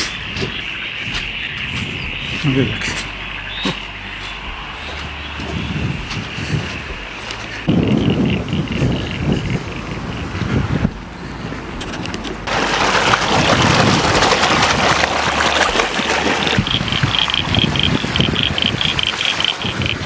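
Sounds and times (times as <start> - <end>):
high chirp: 0.0 - 9.9
water rushing along a channel: 0.0 - 20.0
wind rumbling on microphone: 0.0 - 20.0.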